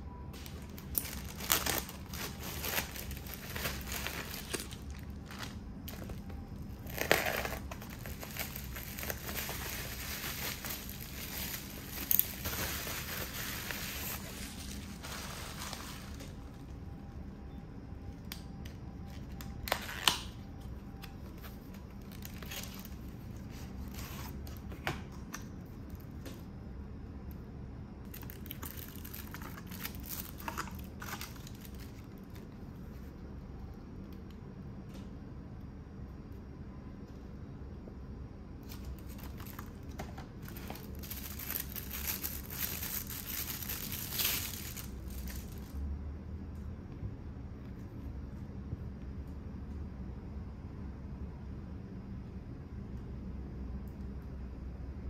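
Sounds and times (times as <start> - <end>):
card and plastic rustling: 0.4 - 16.8, 18.7 - 25.1, 28.1 - 32.5, 38.6 - 45.7
plastic packaging crinkling: 0.4 - 16.8, 19.0 - 24.7, 28.1 - 32.6, 38.6 - 45.7.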